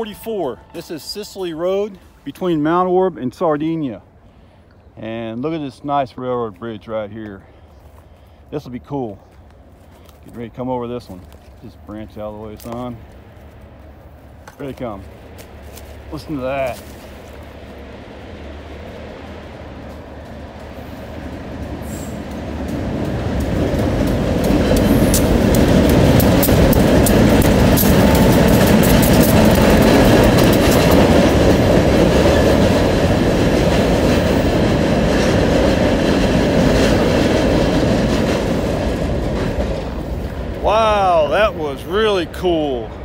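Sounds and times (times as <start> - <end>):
diesel locomotive working hard: 0.0 - 43.0
wheels clicking over rail joints: 8.9 - 43.0.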